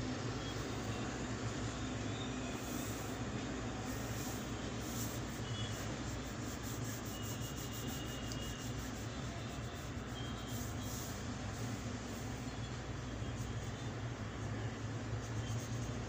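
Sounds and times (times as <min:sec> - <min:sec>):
pencil scratching on paper: 0:02.6 - 0:03.2, 0:03.8 - 0:12.5, 0:13.4 - 0:16.0.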